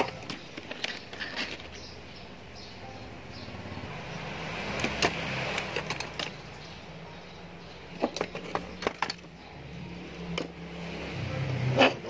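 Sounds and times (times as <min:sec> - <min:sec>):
small items clicking on metal workbench: 0:00.0 - 0:02.0, 0:04.8 - 0:06.5, 0:07.9 - 0:09.4.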